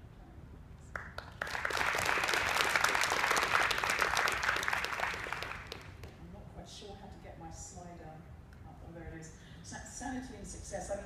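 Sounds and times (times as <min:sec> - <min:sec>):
audience applauding: 0:01.0 - 0:06.1.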